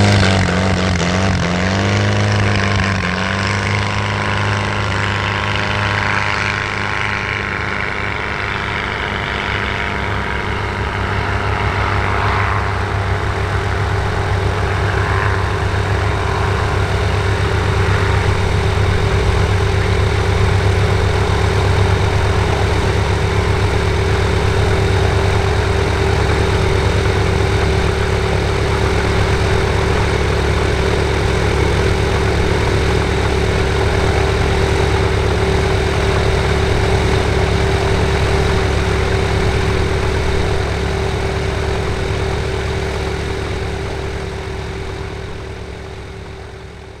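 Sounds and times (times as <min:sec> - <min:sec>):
engine idling drone: 0:00.0 - 0:47.0
light aircraft taking off: 0:00.0 - 0:47.0.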